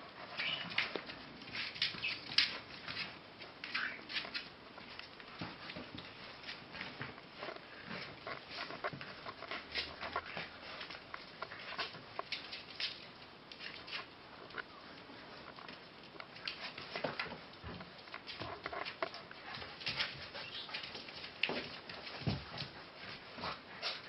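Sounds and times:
paws pattering on tiled floor: 0.0 - 24.0
scrapes and knocks: 5.3 - 12.6.

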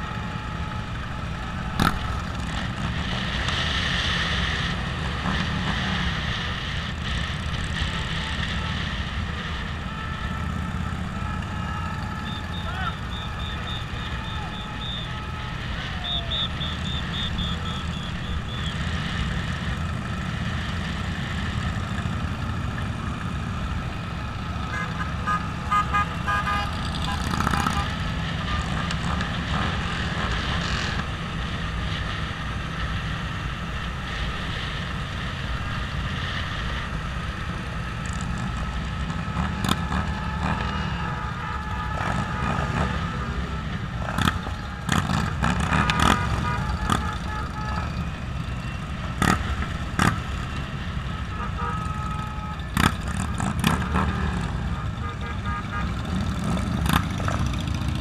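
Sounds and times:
motorcycles rumbling: 0.0 - 58.0
vehicle horns tooting: 7.7 - 18.8, 24.6 - 31.0, 39.0 - 57.5.

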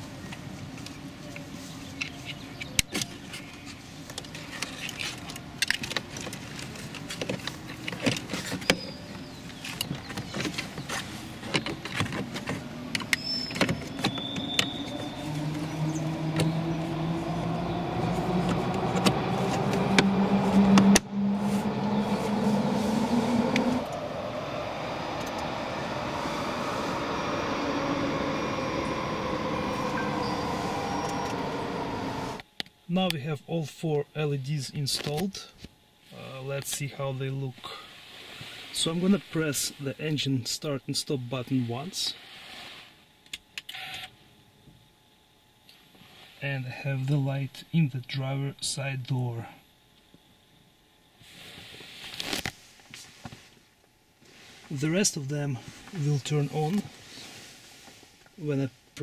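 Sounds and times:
steady rising hum: 12.6 - 32.4.

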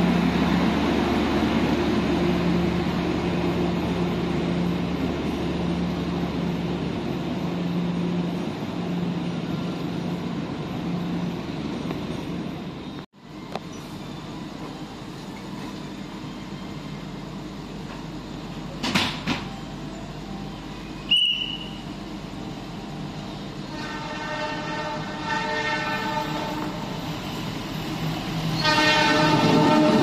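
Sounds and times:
low rumble of train: 0.0 - 30.0
locomotive horn blast: 23.6 - 27.1, 28.6 - 30.0.

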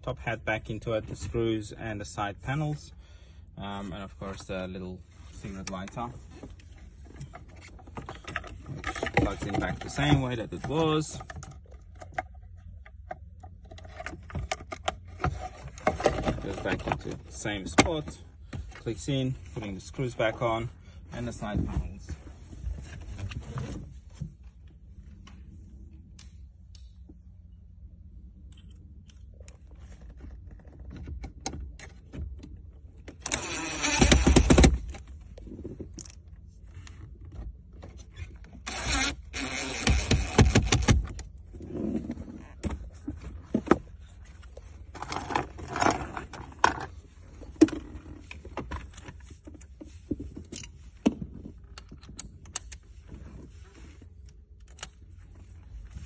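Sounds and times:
clicks and rattles of parts: 5.6 - 18.9, 28.4 - 41.4, 42.2 - 53.5
cordless driver driving screws: 33.2 - 34.7, 38.7 - 41.0.

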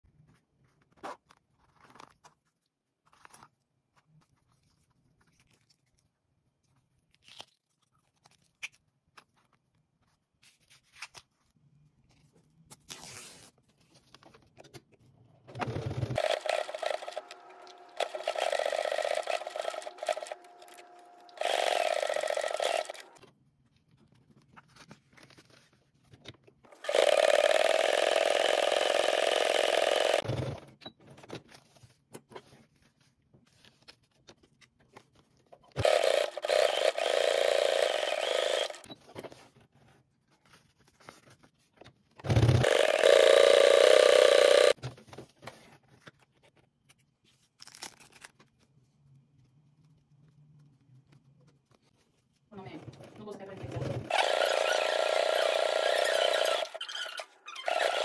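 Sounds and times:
sewing machine stitching: 15.5 - 23.2, 26.7 - 30.8, 35.8 - 38.9, 42.2 - 44.8, 53.5 - 58.0.

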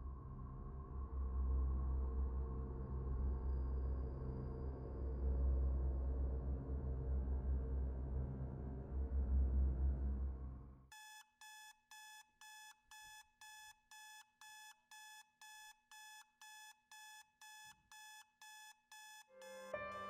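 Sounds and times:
digital alarm clock beeping: 10.9 - 19.7
piano music: 19.4 - 20.0.

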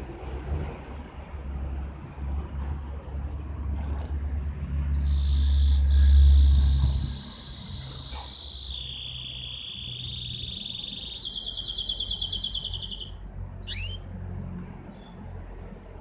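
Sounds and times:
canary singing trills: 2.5 - 14.1.

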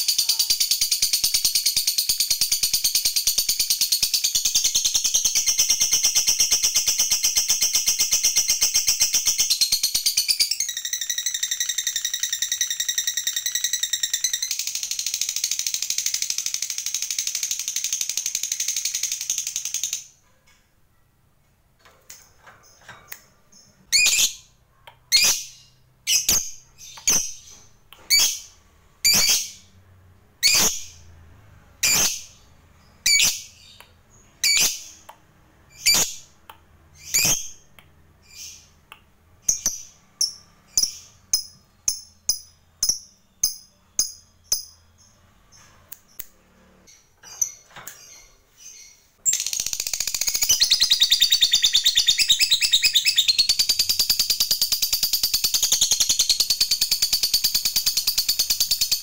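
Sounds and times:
sharp bird chirps: 0.0 - 20.3, 22.6 - 29.8, 30.4 - 31.2, 31.8 - 46.3, 46.9 - 59.0.

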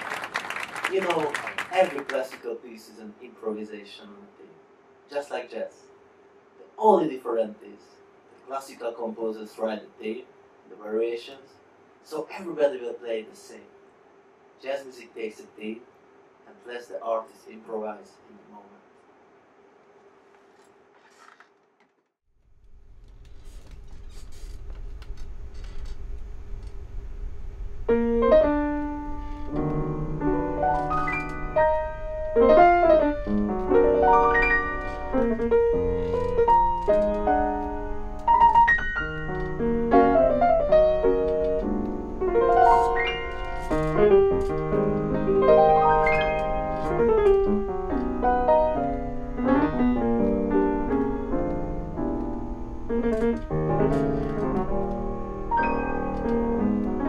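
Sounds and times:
grand piano playing: 27.9 - 57.0.

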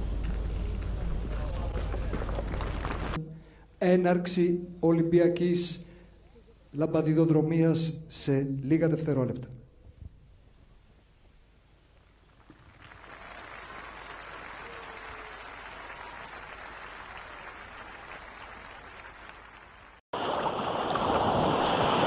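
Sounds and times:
crowd applauding: 1.3 - 3.2, 12.5 - 20.0.

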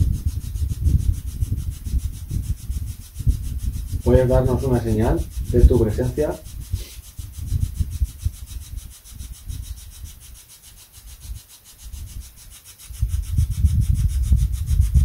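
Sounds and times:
low uneven rumbling: 0.0 - 6.8
fast ticking hiss: 0.0 - 15.0.

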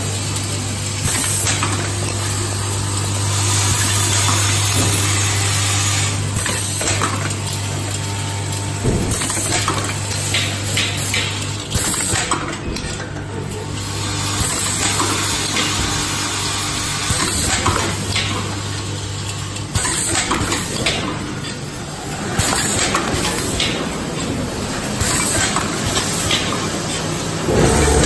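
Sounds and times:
feeder machine hum: 0.0 - 11.6, 27.1 - 28.0.

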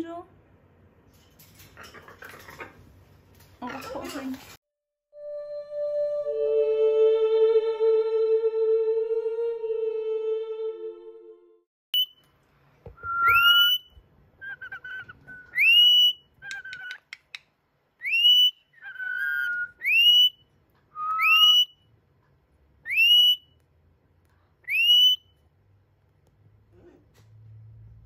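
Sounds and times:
parrot rising whistles: 13.0 - 17.0, 18.0 - 20.4, 21.0 - 21.8, 24.7 - 25.2.

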